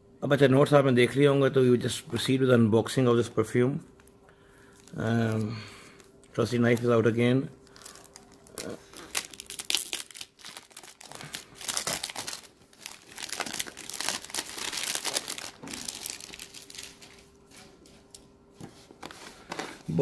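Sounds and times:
cellophane crinkling and tearing: 0:04.8 - 0:07.0, 0:07.6 - 0:17.4.

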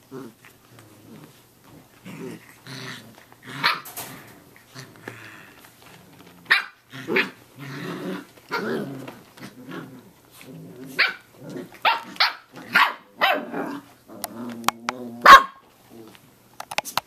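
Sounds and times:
puppies growling: 0:00.0 - 0:16.3
puppies barking and yipping: 0:06.2 - 0:07.6, 0:10.9 - 0:13.5.

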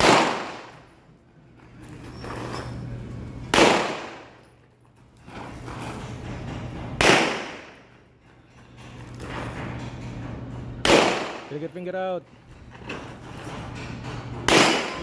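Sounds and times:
pistol shots with echo: 0:00.0 - 0:00.8, 0:03.5 - 0:04.4, 0:07.0 - 0:07.8, 0:10.8 - 0:11.5, 0:14.5 - 0:15.0.

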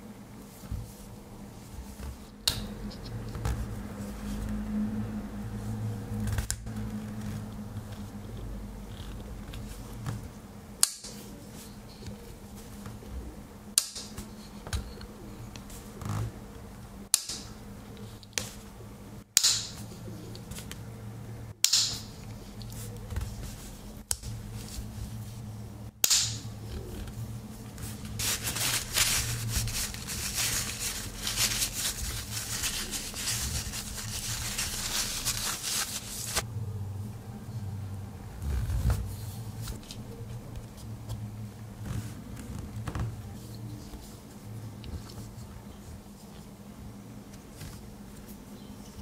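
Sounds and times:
cloth rubbing over knife: 0:27.8 - 0:36.4.

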